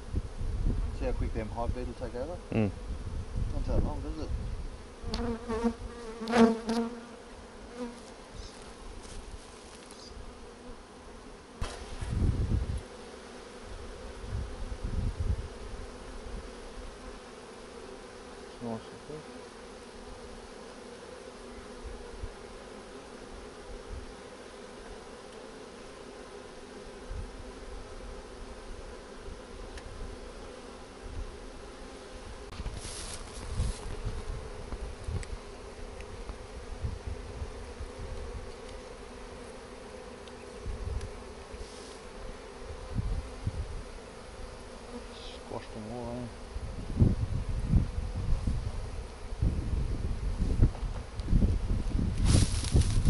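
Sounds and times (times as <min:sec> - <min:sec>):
bees buzzing: 0:01.8 - 0:53.0.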